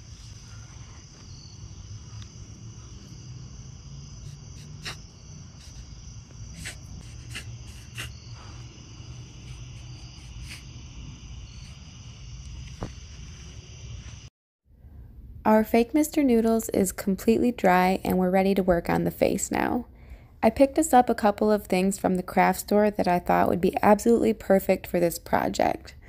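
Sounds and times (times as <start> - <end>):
crickets chirping: 0.0 - 14.3.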